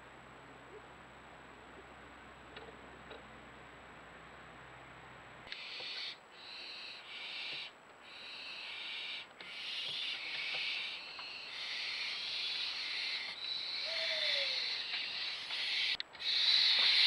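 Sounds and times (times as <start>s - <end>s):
owl hissing: 5.5s - 17.0s.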